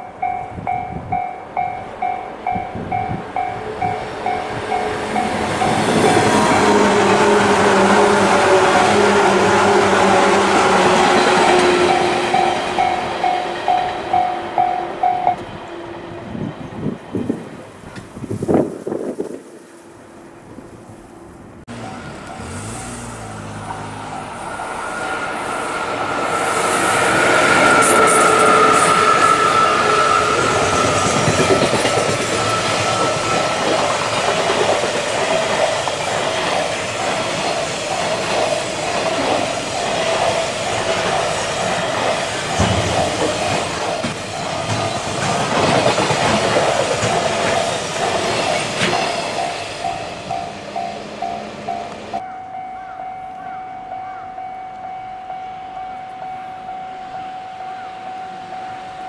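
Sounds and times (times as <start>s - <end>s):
level-crossing bell dinging: 0.0s - 6.2s, 10.8s - 15.4s, 49.1s - 59.0s
locomotive high whine: 0.0s - 18.0s, 19.7s - 52.9s
clickety-clack of train wheels: 1.9s - 15.6s, 26.3s - 52.2s.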